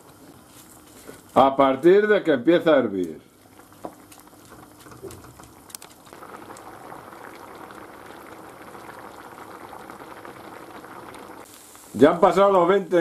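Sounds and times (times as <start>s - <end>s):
broth bubbling in a pan: 3.3s - 13.0s.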